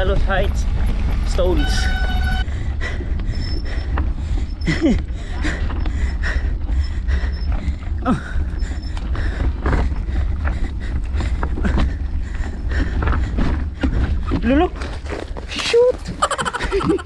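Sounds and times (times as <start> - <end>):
bike rattling: 0.0 - 17.0
gravel crunching under tyres: 0.0 - 17.0
wind rumbling on microphone: 0.0 - 17.0
short creaks: 0.9 - 6.2.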